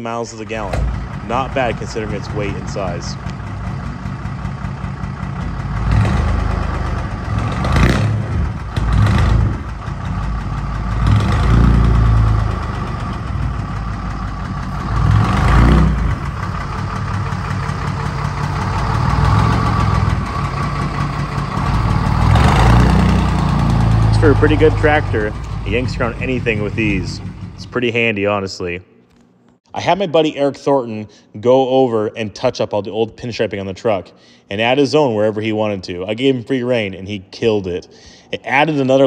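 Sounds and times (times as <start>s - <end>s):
diesel truck engine revving: 0.4s - 28.0s.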